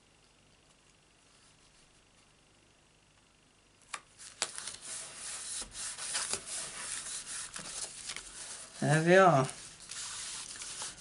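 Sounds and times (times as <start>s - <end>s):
cardstock rustling: 4.2s - 11.0s.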